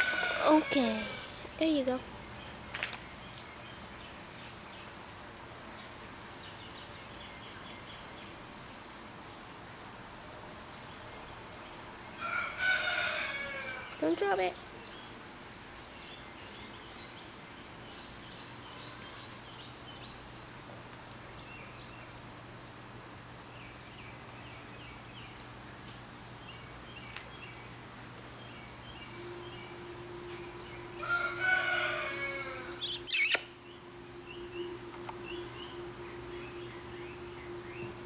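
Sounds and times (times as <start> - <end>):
long falling animal call: 29.2 - 38.0
short bursts of noise: 32.2 - 33.6
small birds chirping: 32.7 - 38.0.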